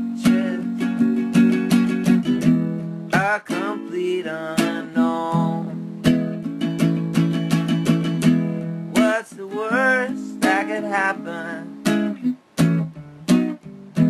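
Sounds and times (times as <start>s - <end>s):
person singing: 0.0s - 2.2s, 3.1s - 6.0s, 8.9s - 11.9s
acoustic guitar strumming: 0.0s - 14.0s.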